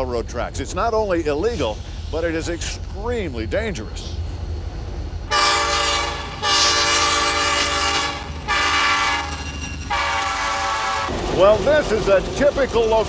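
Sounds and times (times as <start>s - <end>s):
locomotive air horn blasts: 5.3s - 11.1s.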